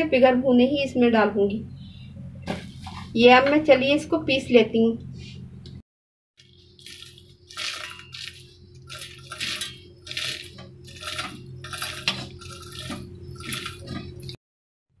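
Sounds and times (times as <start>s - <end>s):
seeds rattling against metal jar: 6.4s - 14.4s.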